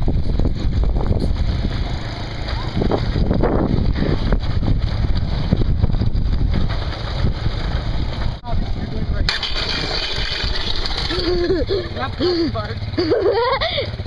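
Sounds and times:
wind on microphone: 0.0s - 2.0s, 2.6s - 9.3s
cart rolling on pavement: 0.0s - 14.0s
small atv engine running: 0.0s - 14.0s.

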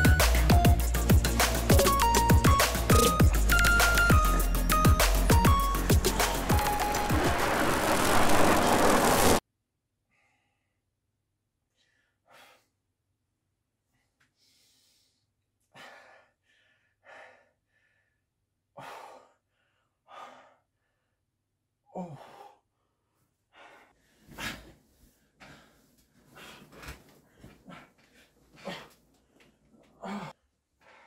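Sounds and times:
person breathing heavily and sighing: 21.8s - 31.0s.

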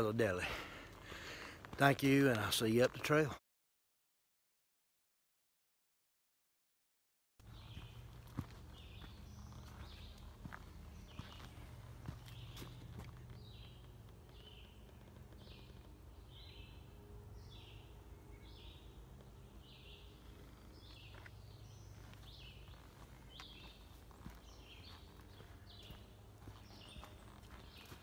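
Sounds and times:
footsteps on dirt trail: 0.0s - 3.4s, 7.4s - 16.6s, 19.6s - 28.0s
songbird singing: 7.4s - 28.0s.

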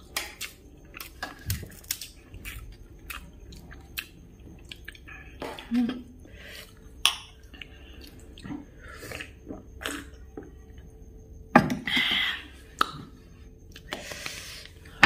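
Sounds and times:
chewing: 0.0s - 5.7s.

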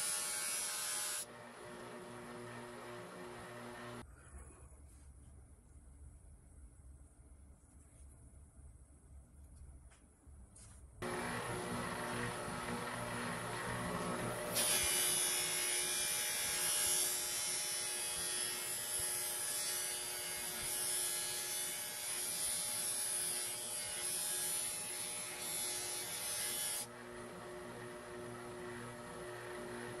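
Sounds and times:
bench grinder motor hum: 0.0s - 4.0s, 11.0s - 30.0s
metal grinding on bench grinder: 11.0s - 30.0s.

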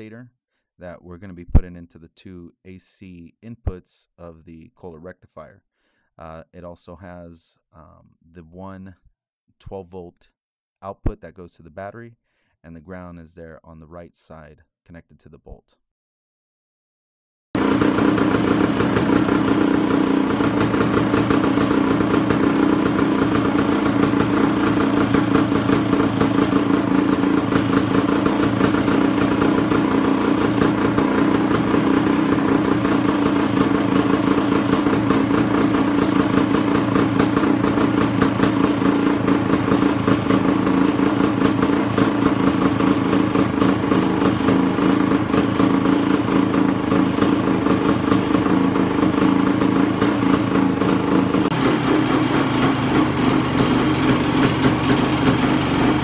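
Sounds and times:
motorcycle engine idling: 17.6s - 56.0s.

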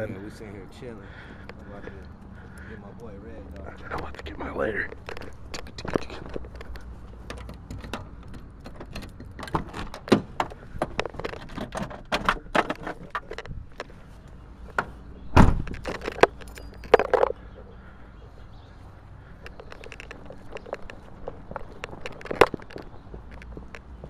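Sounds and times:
heavy thump: 15.3s - 15.8s.

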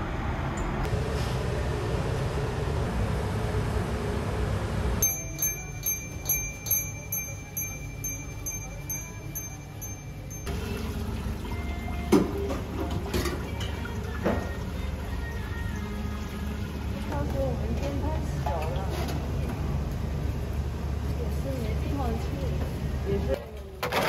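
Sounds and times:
bright chime tones: 5.0s - 10.6s
steady high tone: 5.0s - 10.6s.

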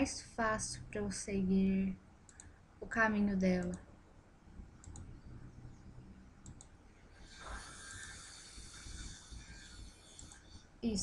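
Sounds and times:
soft hiss: 0.0s - 11.0s
computer mouse clicks: 2.3s - 2.5s, 3.5s - 3.8s, 4.8s - 8.1s, 9.0s - 10.6s.

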